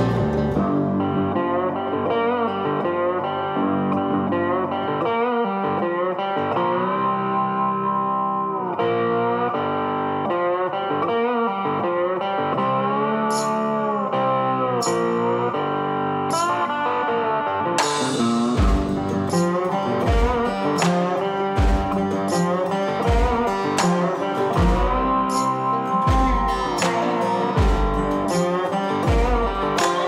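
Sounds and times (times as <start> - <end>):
guitar background music: 0.0 - 30.0
percussive hits: 17.8 - 30.0.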